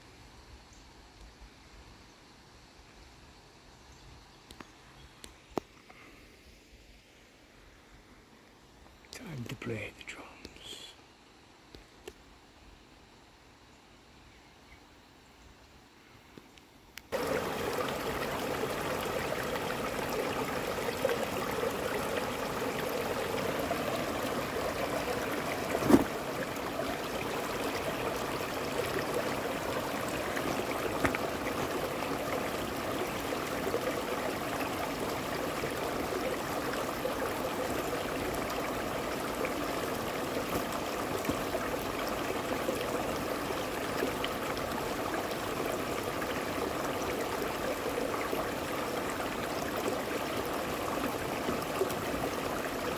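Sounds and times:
stream rushing over boulders: 0:17.1 - 0:52.9
footstep on rocks: 0:25.7 - 0:26.1.

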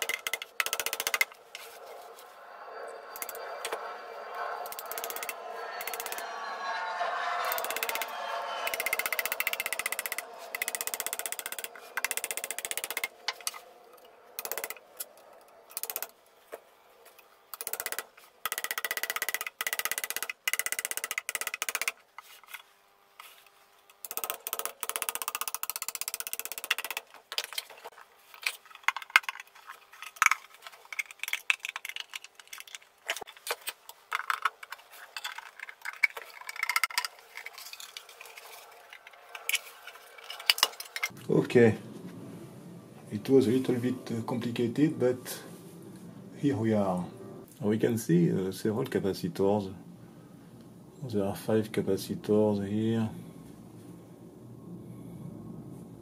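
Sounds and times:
metal scraping: 0:00.0 - 0:17.2, 0:34.1 - 0:47.5.

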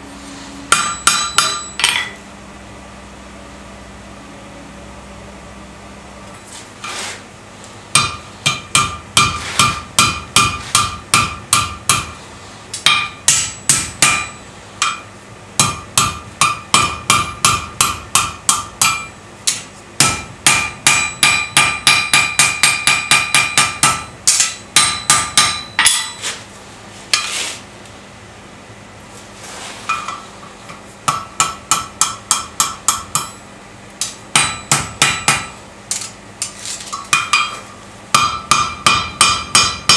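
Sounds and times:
hammer ringing on anvil: 0:00.7 - 0:02.2, 0:08.0 - 0:12.1, 0:12.8 - 0:26.2, 0:31.1 - 0:33.4, 0:34.3 - 0:35.6, 0:37.1 - 0:39.9.

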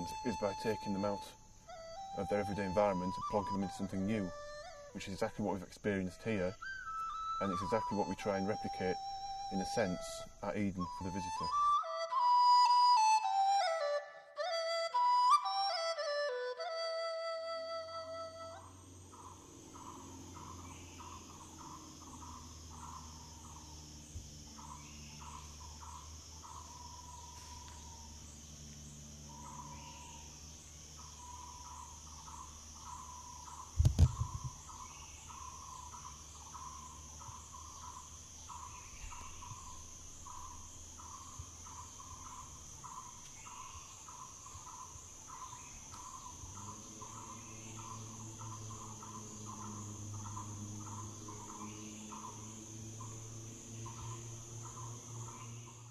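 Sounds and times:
insects trilling: 0:00.0 - 0:55.9
low chirping call: 0:00.0 - 0:55.9
low thump: 0:33.8 - 0:34.6.

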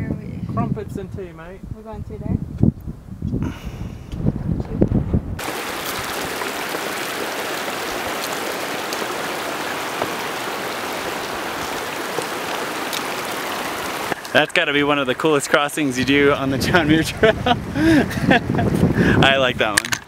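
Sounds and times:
water rushing over rocks: 0:05.4 - 0:17.8.

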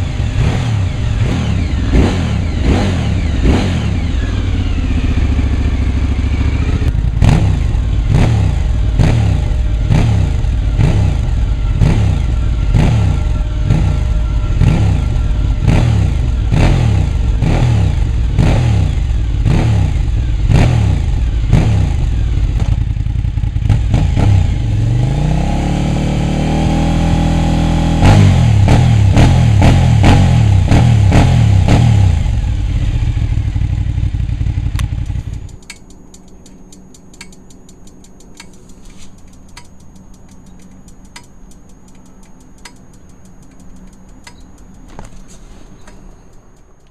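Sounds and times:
motorcycle engine revving: 0:00.0 - 0:35.8.

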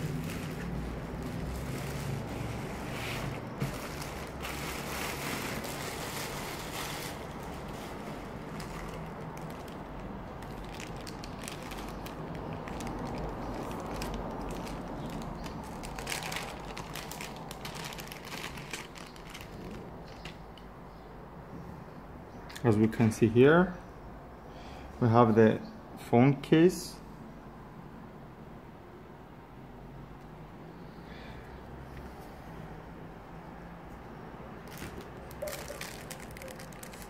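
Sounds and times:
plastic packaging crinkling: 0:00.0 - 0:20.4, 0:34.6 - 0:37.0.

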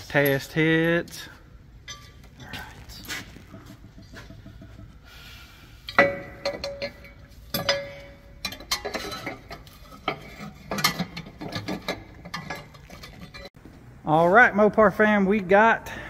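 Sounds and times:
metal parts clinking and knocking: 0:01.8 - 0:04.9, 0:05.9 - 0:13.6.

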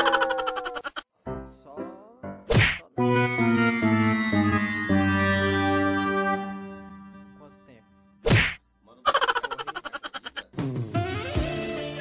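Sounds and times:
comedy music: 0:00.0 - 0:01.0, 0:03.0 - 0:06.9, 0:09.1 - 0:12.0
falling cartoon tone: 0:00.0 - 0:01.0, 0:09.1 - 0:10.4
pitch-bending tone: 0:03.1 - 0:06.6.

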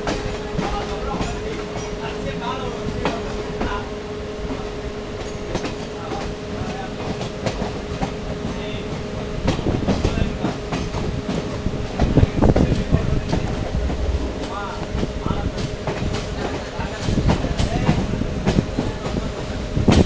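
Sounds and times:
train wheels rumbling on rails: 0:00.0 - 0:20.0
steady hum: 0:13.5 - 0:15.5.

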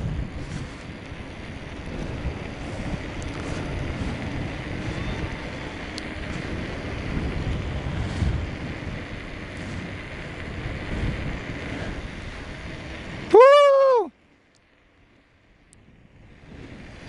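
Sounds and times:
wind buffeting microphone: 0:00.0 - 0:14.1, 0:15.8 - 0:17.0
tyres rolling on asphalt: 0:00.0 - 0:17.0.

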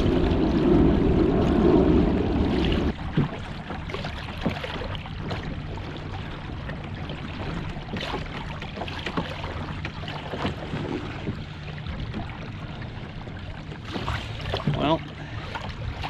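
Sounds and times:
wind on microphone: 0:00.0 - 0:04.1
water splashing against hull: 0:00.0 - 0:16.0.

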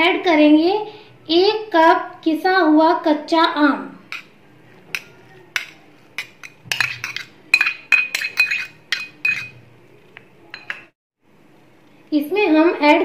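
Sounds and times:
metal spoon clinking on steel bowl: 0:04.1 - 0:09.6, 0:10.5 - 0:10.9.

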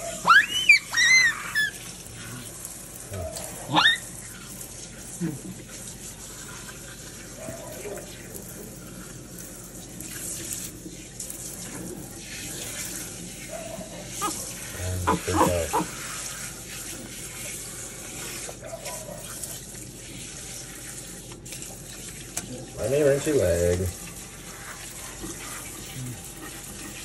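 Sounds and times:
sink sprayer spraying water: 0:14.0 - 0:27.0
person speaking: 0:14.8 - 0:15.9.

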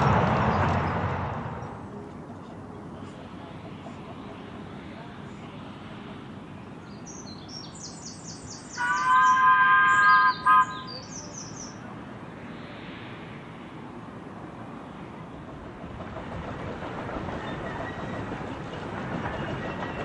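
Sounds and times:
steam locomotive whistle: 0:08.8 - 0:11.0.

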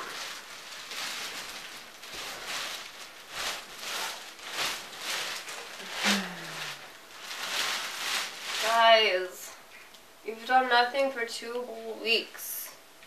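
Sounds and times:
clothes and bedding rustling: 0:00.0 - 0:09.7.

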